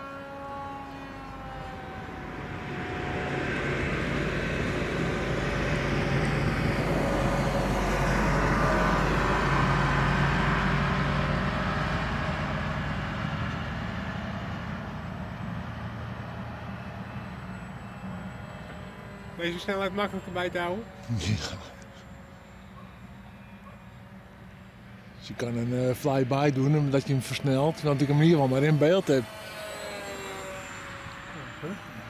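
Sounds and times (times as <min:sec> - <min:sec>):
model plane motor whining buzz: 0:17.0 - 0:24.8, 0:26.5 - 0:32.0.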